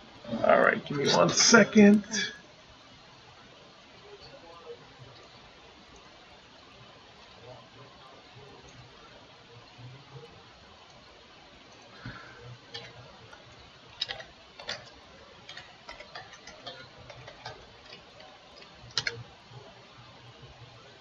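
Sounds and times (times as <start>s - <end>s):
keyboard and mouse clicking: 14.0s - 19.3s.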